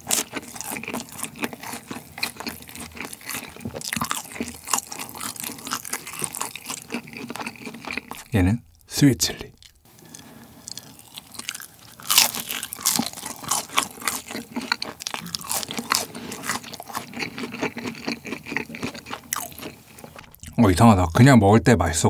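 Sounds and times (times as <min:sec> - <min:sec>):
crunchy chewing: 0:00.0 - 0:20.6
crisp bite into fried food: 0:09.6 - 0:20.5.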